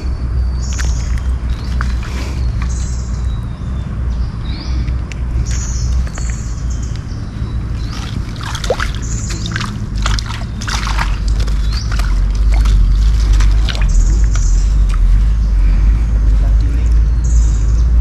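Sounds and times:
steady low rumble: 0.0s - 18.0s
wet moss squeezed by hand: 0.7s - 2.8s, 7.8s - 15.2s.

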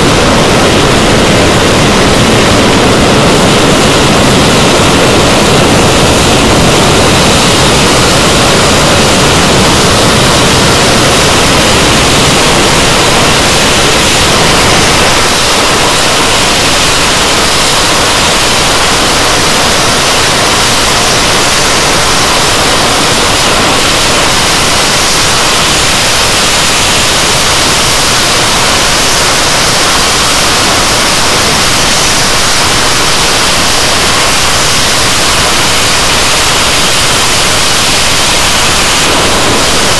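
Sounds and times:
jet engines running at high power: 0.0s - 39.9s.

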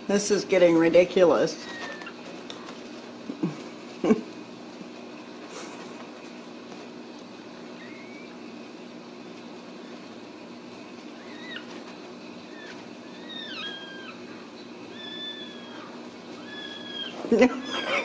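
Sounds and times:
steady low hum: 0.0s - 18.0s
kittens mewing: 7.7s - 8.5s, 11.0s - 18.0s.

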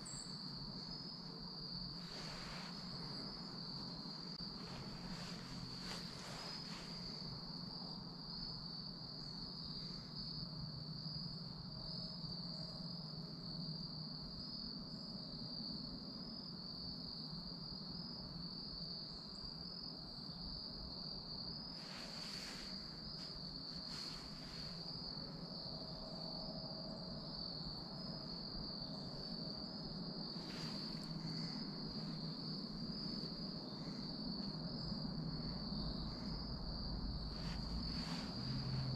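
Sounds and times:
faint rustles: 0.0s - 10.5s, 21.1s - 38.9s
high-pitched insect trill: 0.0s - 38.9s
low background hiss: 0.0s - 38.9s.

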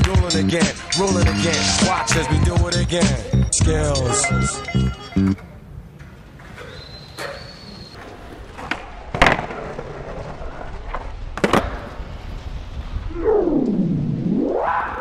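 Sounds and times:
skateboard wheels rolling on concrete: 5.3s - 13.2s
skateboard landing clack: 8.0s - 12.1s.

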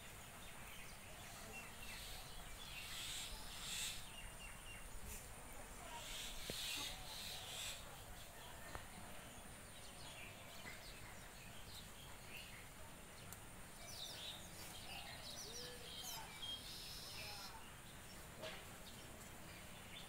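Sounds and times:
outdoor background hiss: 0.0s - 20.0s
bird chirps: 13.8s - 18.2s.

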